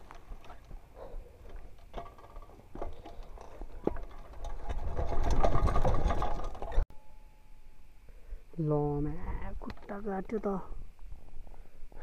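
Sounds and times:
tyres crunching over stones: 0.0s - 6.8s
bike rattling: 0.0s - 6.9s.

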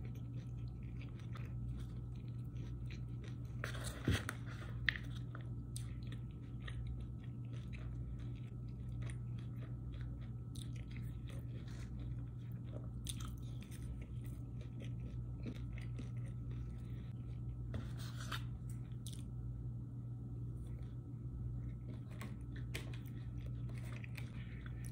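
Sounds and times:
chewing and crunching salad: 0.0s - 17.7s, 18.3s - 19.4s, 20.4s - 24.9s
steady low hum: 0.0s - 24.9s.

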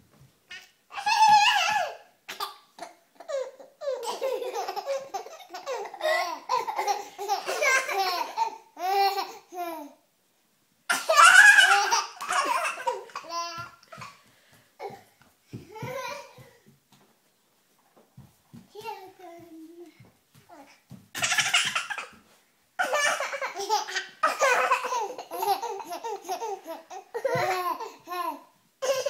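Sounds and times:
baby laughing: 0.9s - 9.9s, 10.9s - 14.2s, 21.2s - 22.2s, 22.8s - 29.0s.

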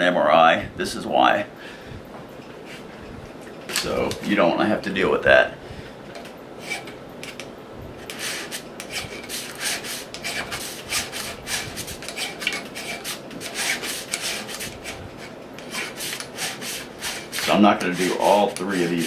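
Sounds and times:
metal file scraping steel: 6.6s - 7.4s, 8.1s - 19.0s.

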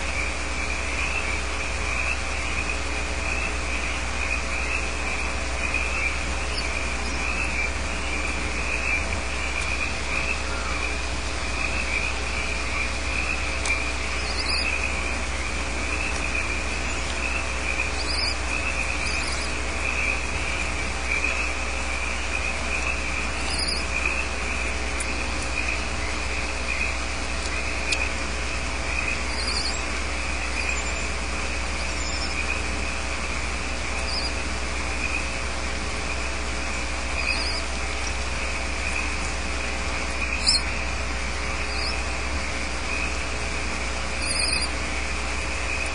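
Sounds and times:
frogs and insects chirring: 0.0s - 45.9s
low electrical hum: 0.0s - 45.9s.

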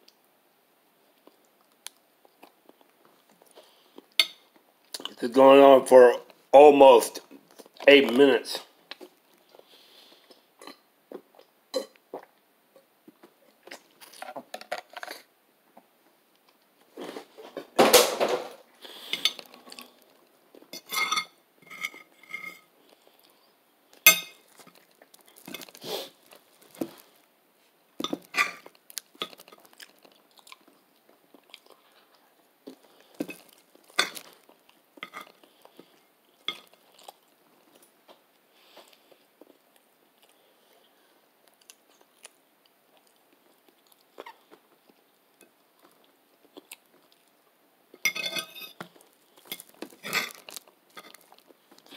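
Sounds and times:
person chewing: 22.2s - 27.3s, 28.0s - 38.0s, 38.6s - 48.1s, 48.7s - 51.9s.

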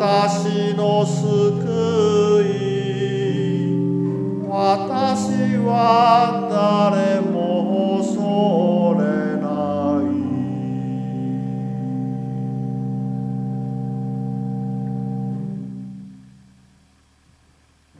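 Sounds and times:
man singing with vibrato: 0.0s - 13.0s
organ playing: 0.0s - 16.7s.

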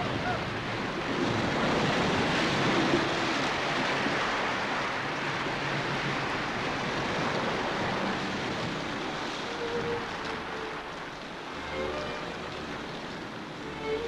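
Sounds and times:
heavy rain: 0.0s - 14.0s
wind: 0.0s - 14.0s.

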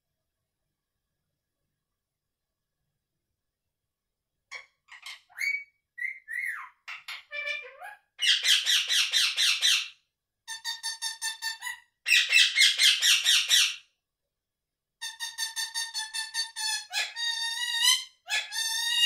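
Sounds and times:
parakeet chirping: 4.5s - 10.0s, 11.6s - 13.8s
parakeet squawking: 4.5s - 10.0s, 11.5s - 13.8s, 15.2s - 19.0s.

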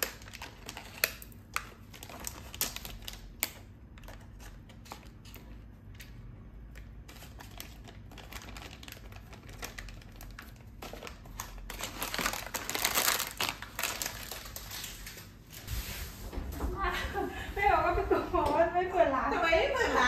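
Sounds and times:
plastic packets crinkling: 0.0s - 5.9s, 6.7s - 15.6s.

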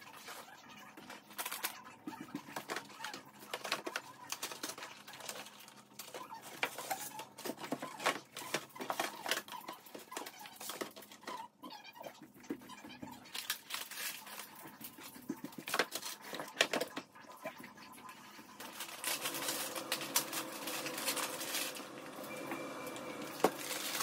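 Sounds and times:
jars and packages knocking: 18.6s - 24.0s.

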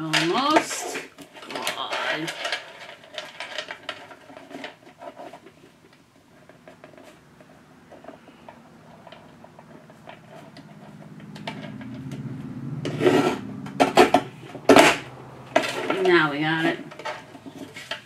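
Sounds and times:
low hum: 7.2s - 18.0s.

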